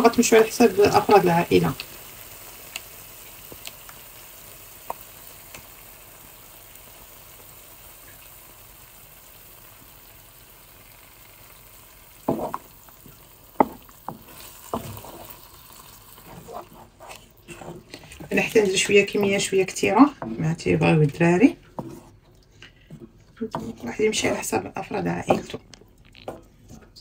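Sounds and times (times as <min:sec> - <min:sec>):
onions sizzling in a pan: 0:00.0 - 0:20.0
sharp knocks and clatters: 0:12.3 - 0:12.7.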